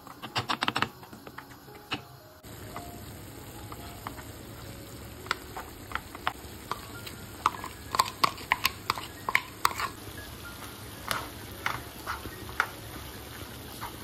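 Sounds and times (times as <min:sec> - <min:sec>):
meat sizzling in a pan: 0:00.0 - 0:14.0.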